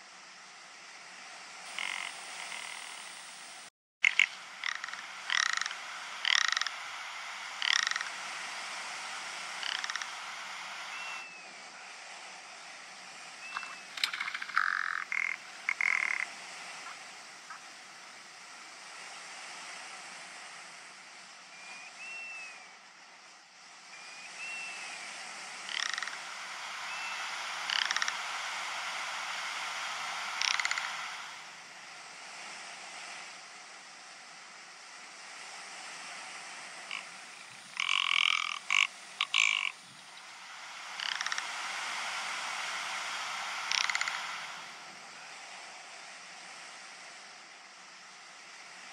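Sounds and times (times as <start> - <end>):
steady outdoor hiss: 0.0 - 48.9
bird croaking calls: 1.7 - 3.2, 4.0 - 8.3, 9.4 - 11.5, 13.4 - 17.7, 25.6 - 28.4, 30.2 - 31.4, 36.9 - 41.6, 43.4 - 44.7
thin arched bird notes: 13.4 - 16.2.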